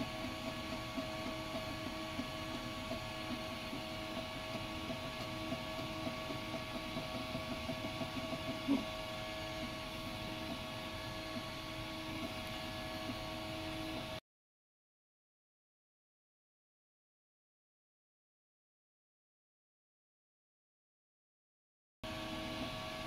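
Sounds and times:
three d printer motors whining: 0:00.0 - 0:14.2, 0:22.1 - 0:23.0.

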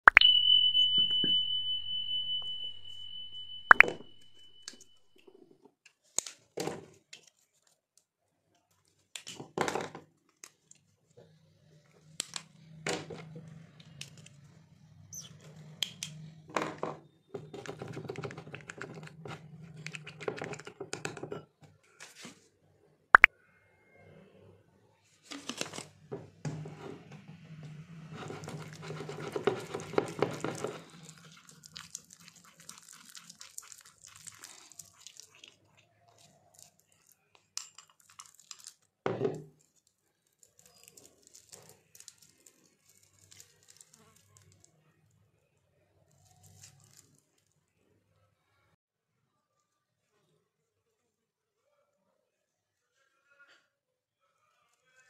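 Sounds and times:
small bottles clicking and tapping: 0:03.7 - 0:04.0, 0:28.4 - 0:35.6, 0:36.6 - 0:38.8
sticky crinkly mixing: 0:28.1 - 0:44.9, 0:46.0 - 0:47.6.

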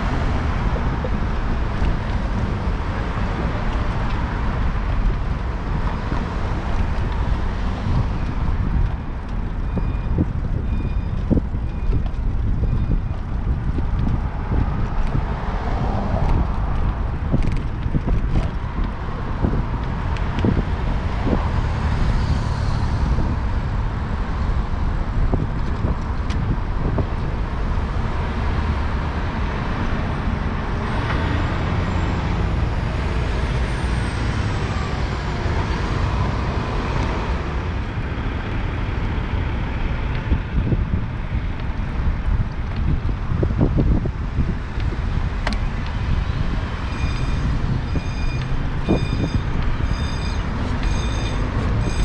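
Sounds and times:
cars and trucks passing: 0:00.0 - 0:52.0.

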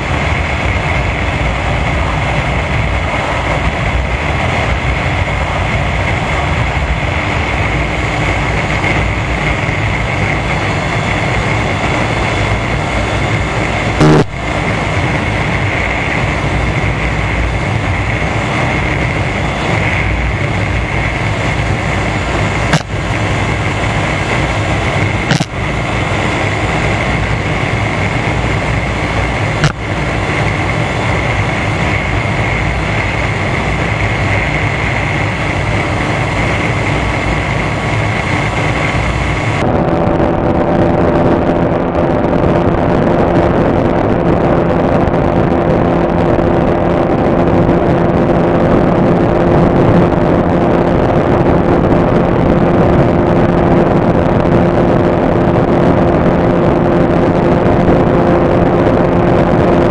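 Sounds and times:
motorcycle engine running: 0:00.0 - 0:42.6
wind rush: 0:00.0 - 0:59.9.

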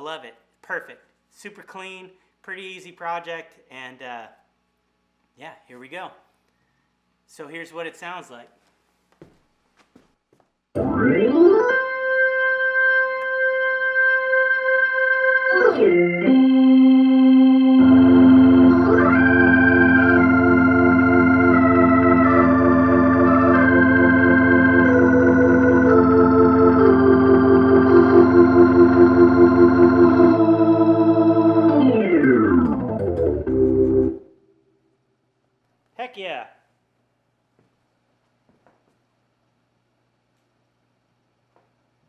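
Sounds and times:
organ chords through rotating speaker: 0:10.7 - 0:34.7.

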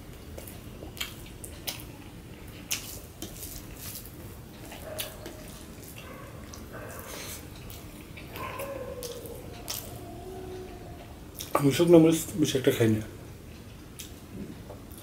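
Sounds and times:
wet squishing of food: 0:00.0 - 0:11.9.

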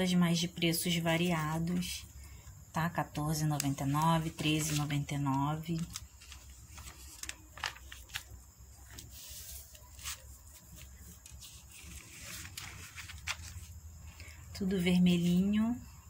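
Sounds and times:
faint low hum: 0:00.0 - 0:16.0
catalogue pages rustling: 0:03.1 - 0:13.8.

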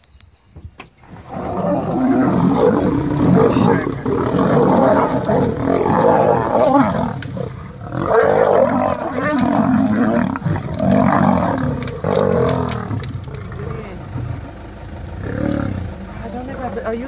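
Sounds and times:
lions fighting and roaring: 0:01.0 - 0:17.0.

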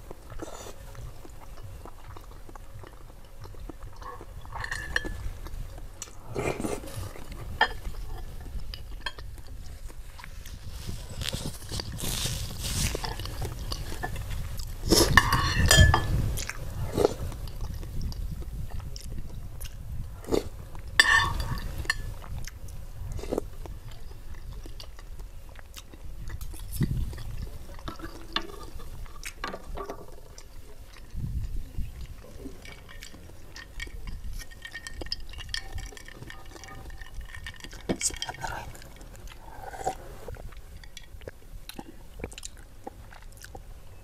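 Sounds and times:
chewing: 0:00.0 - 0:44.0
cutlery clinking on glass bowl: 0:15.1 - 0:16.2, 0:21.0 - 0:22.1, 0:32.6 - 0:38.5.

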